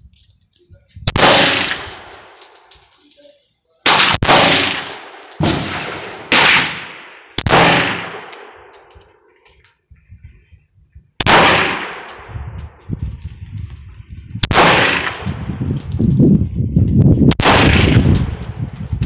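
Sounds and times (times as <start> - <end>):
pistol shots: 1.1 - 2.4, 3.9 - 8.6, 11.2 - 12.3, 14.4 - 15.3, 17.3 - 18.4.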